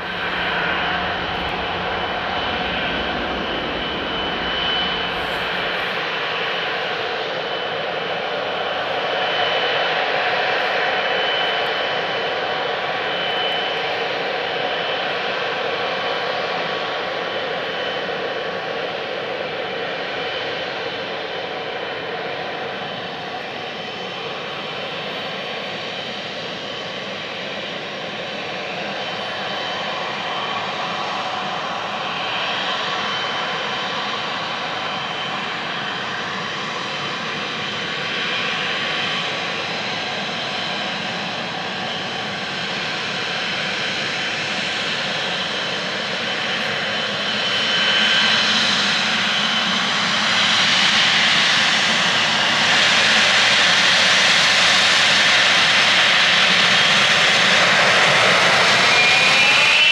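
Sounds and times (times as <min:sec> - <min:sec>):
jet noise rushing: 0:00.0 - 0:06.4
jet engines whining: 0:00.0 - 0:59.9.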